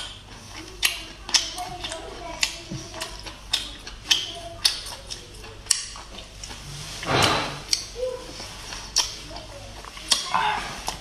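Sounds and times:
noisy slurp: 0.0 - 11.0
sharp clicks and smacks: 0.8 - 6.6.

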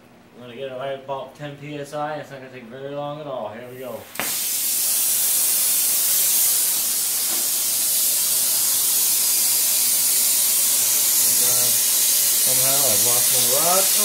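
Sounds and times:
torch flame hissing: 3.7 - 14.0
torch ignition pop: 4.1 - 4.8, 6.0 - 7.6.

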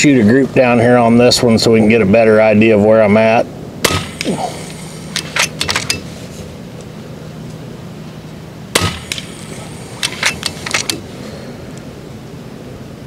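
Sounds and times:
air rifle shot: 3.8 - 6.0, 8.7 - 11.1.

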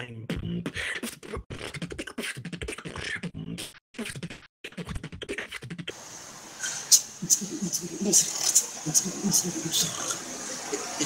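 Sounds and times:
beatboxing: 0.0 - 6.0, 6.9 - 11.0
steady hiss: 6.0 - 11.0.

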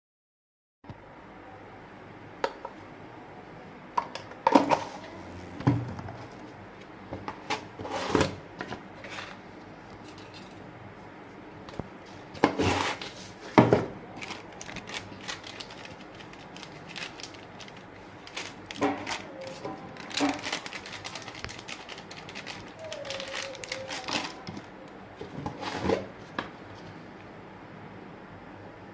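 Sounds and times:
steady low hiss: 4.7 - 7.1.

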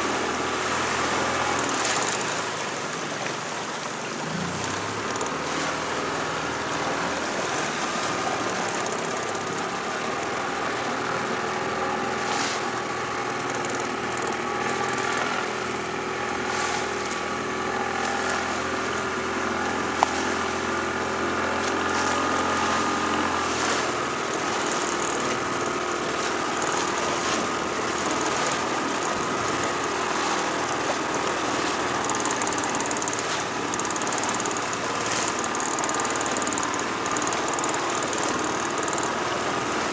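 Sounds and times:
outboard motor running: 0.0 - 39.9
water rushing past hull: 0.0 - 39.9
sharp click: 32.0 - 39.2.

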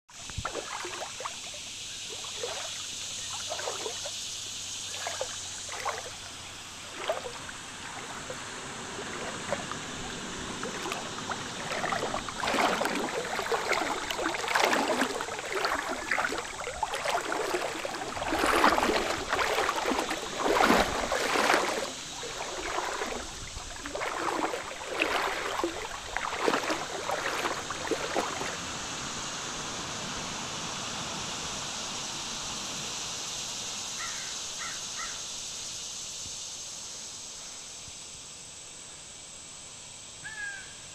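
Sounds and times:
creek water trickling over rock: 0.1 - 28.7
water splashes: 0.1 - 29.1
steady high hiss: 0.2 - 40.9.

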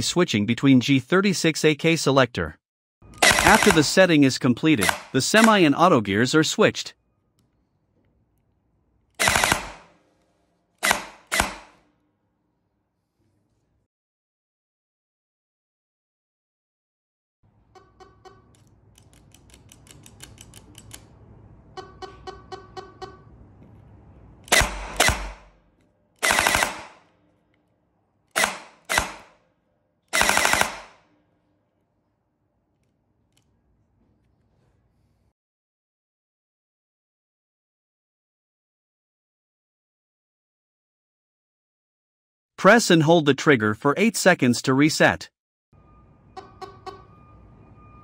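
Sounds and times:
gel blaster gearbox cycling: 3.1 - 4.0
gel blaster firing: 3.2 - 4.0, 4.8 - 5.6, 9.2 - 9.9, 10.8 - 11.8, 24.5 - 25.5, 26.2 - 27.0, 30.2 - 31.0.

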